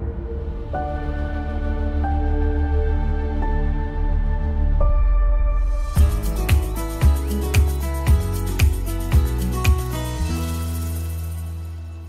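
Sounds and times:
music with steady beat: 5.8s - 12.0s.

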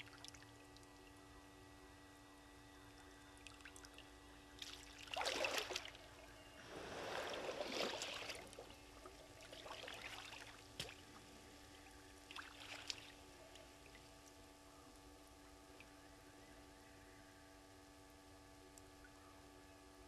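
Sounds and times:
hippo splashing through water: 6.7s - 8.7s.

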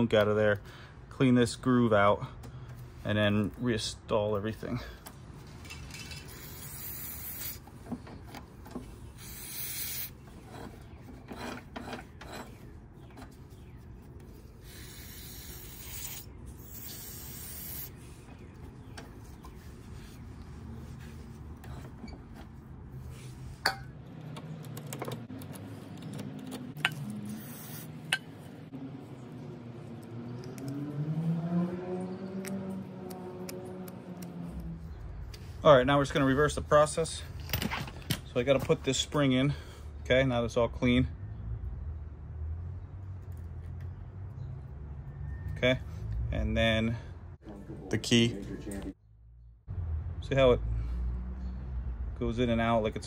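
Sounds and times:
rag rubbing on metal axle: 5.6s - 13.7s.

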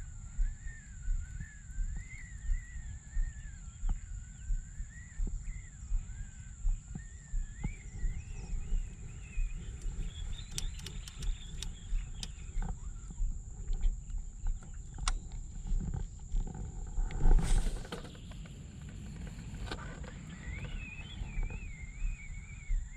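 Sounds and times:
faint wavering high whine: 0.0s - 22.9s
wind buffeting microphone: 0.0s - 22.9s
sharp clicks: 9.5s - 12.8s, 13.7s - 15.9s.

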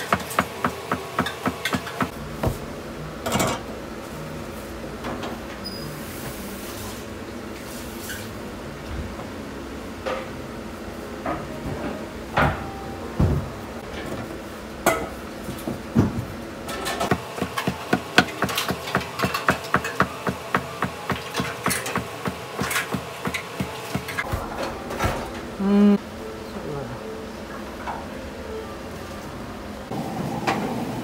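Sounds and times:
knife chopping dough on wooden board: 17.1s - 24.2s.

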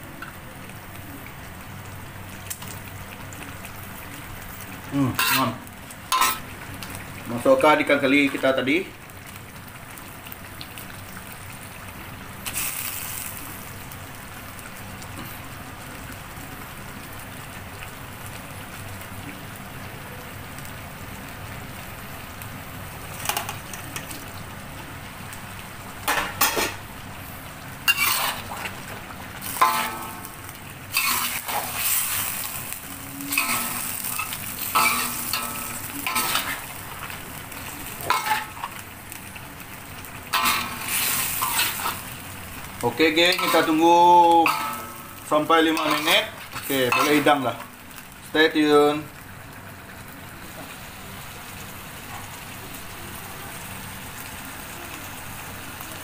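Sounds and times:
sauce sizzling in a wok: 0.0s - 56.0s
metal spatula scraping a wok: 5.2s - 6.4s, 27.9s - 28.8s, 30.9s - 32.4s, 33.3s - 36.7s, 40.3s - 42.0s, 43.2s - 43.8s, 44.4s - 47.4s.

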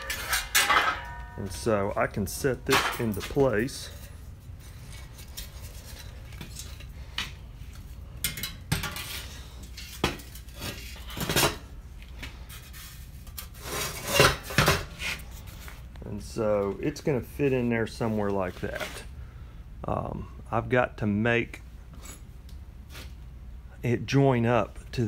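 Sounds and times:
metal clanks and knocks: 0.0s - 1.9s, 2.6s - 4.0s
metal scraping and rubbing: 0.0s - 7.0s, 12.4s - 15.8s.

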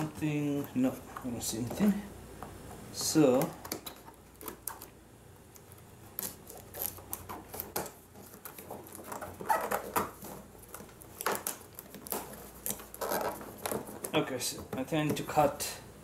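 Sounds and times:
cardboard and tape rustling: 0.0s - 2.1s, 2.7s - 5.0s, 5.6s - 15.6s
scissors opening cardboard box: 6.2s - 14.2s.

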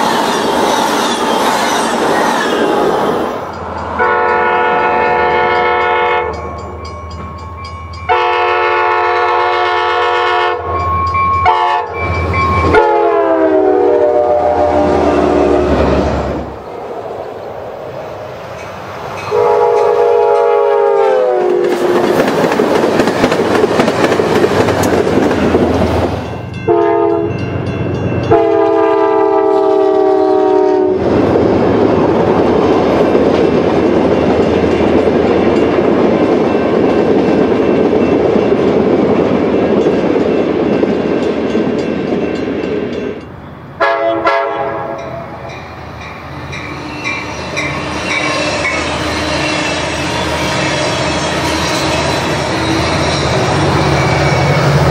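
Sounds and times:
train cars rolling on rails: 0.0s - 54.9s
train horn blasts: 4.0s - 6.4s, 8.1s - 15.9s, 19.3s - 22.0s, 26.5s - 27.4s, 28.2s - 31.1s, 43.8s - 45.6s.

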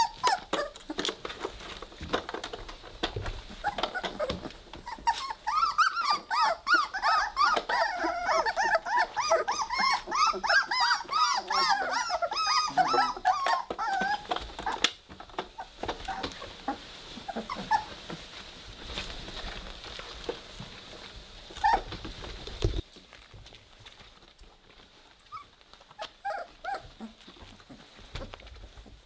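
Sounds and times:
puppies whining and yipping: 0.0s - 2.5s, 3.4s - 18.2s, 21.5s - 22.6s, 25.2s - 29.0s
scuffling on bedding: 15.6s - 29.0s.

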